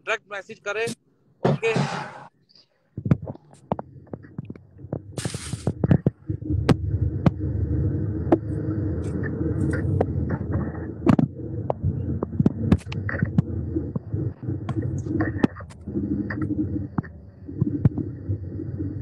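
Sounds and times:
car cabin rumble: 4.5s - 19.0s
sharp clicks and knocks: 8.3s - 18.1s.

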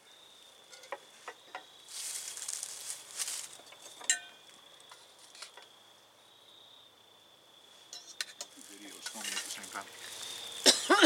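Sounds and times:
metal spoon scraping cast-iron pot: 0.7s - 1.0s, 7.9s - 10.2s.

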